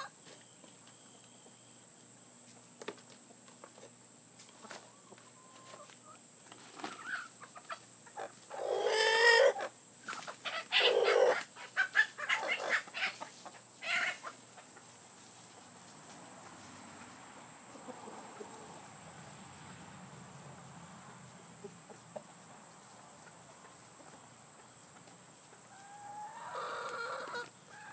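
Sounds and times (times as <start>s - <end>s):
chickens clucking: 0.0s - 19.9s, 20.8s - 27.9s
rooster crowing: 25.8s - 27.9s.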